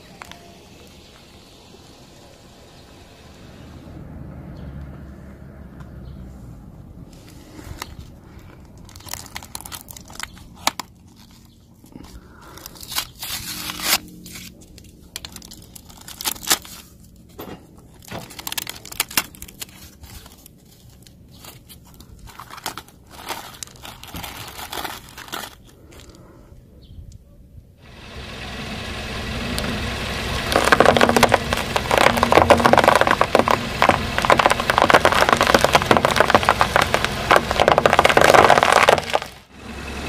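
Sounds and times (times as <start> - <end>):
objects crunching under car tyre: 7.1 - 26.4, 30.3 - 39.5.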